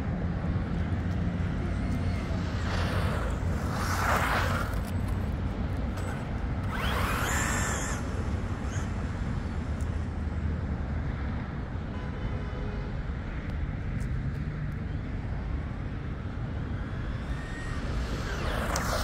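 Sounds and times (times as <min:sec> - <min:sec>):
toy truck electric motor whining: 0:06.0 - 0:09.3.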